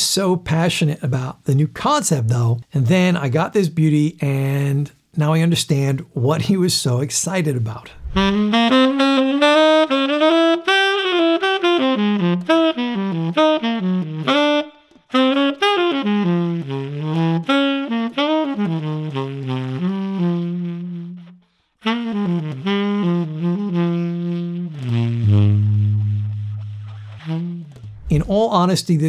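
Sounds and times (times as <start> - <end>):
tenor saxophone solo: 8.1 - 28.2.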